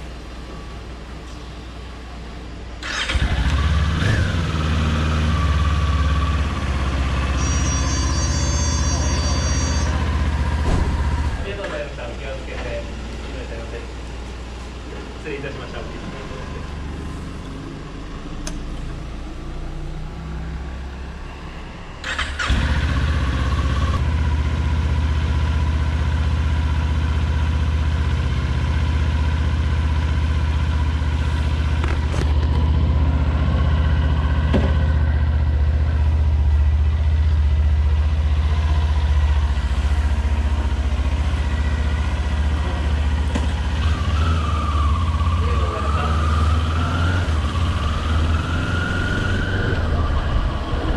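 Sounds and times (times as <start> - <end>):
motorcycle engine starting and idling: 2.8 - 13.4, 22.0 - 46.1.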